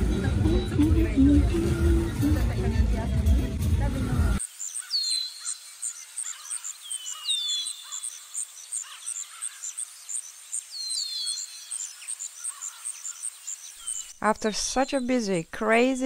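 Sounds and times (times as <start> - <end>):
insects chirping: 4.4 - 16.0.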